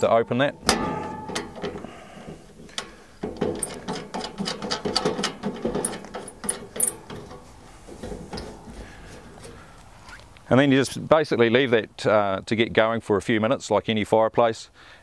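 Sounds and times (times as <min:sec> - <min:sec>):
small clicks and scrapes on metal: 0:02.5 - 0:10.2.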